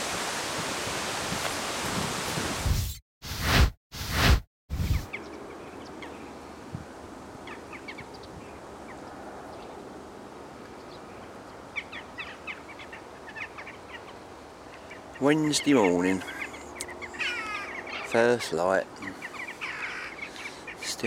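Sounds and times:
outdoor background hiss: 0:05.0 - 0:21.0
small birds chirping: 0:07.4 - 0:09.8, 0:10.7 - 0:21.0.

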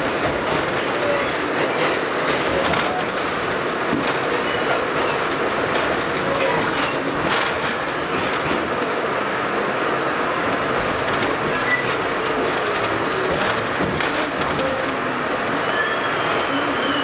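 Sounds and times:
subway train rumbling on rails: 0:00.0 - 0:17.0
high wheel squeaks: 0:11.4 - 0:13.5, 0:15.5 - 0:17.0.

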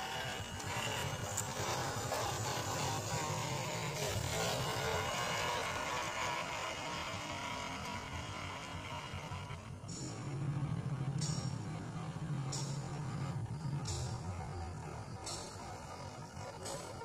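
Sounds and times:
small electric motor running: 0:00.0 - 0:17.0.

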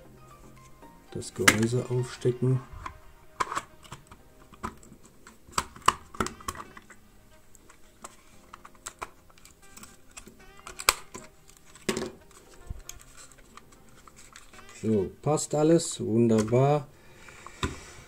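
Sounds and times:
plastic shell snapping into place: 0:01.4 - 0:01.7, 0:02.8 - 0:06.9, 0:10.2 - 0:12.2.

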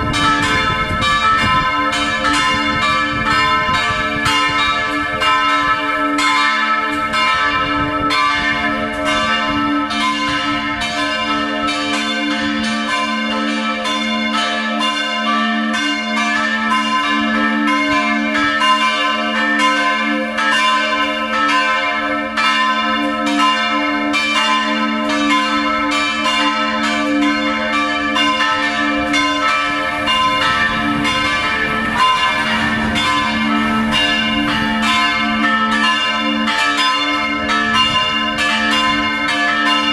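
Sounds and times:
church bells pealing: 0:00.0 - 0:39.9.

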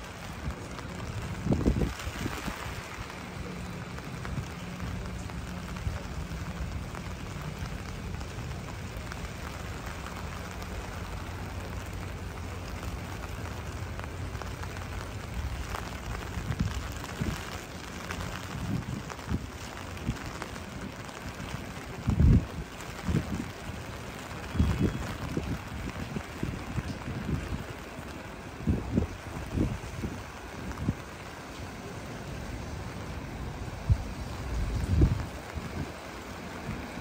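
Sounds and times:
boat engine humming: 0:00.0 - 0:21.9
steady rain falling: 0:00.0 - 0:37.0.

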